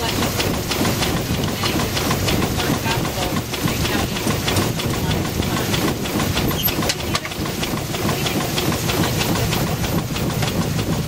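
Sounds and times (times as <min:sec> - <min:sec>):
mechanical clatter: 0:00.0 - 0:11.0
steam hiss and rumble: 0:00.0 - 0:11.0.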